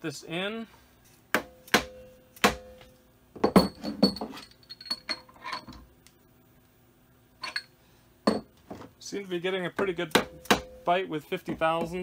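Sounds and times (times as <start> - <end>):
mallet tapping metal bar: 10.1 - 10.8.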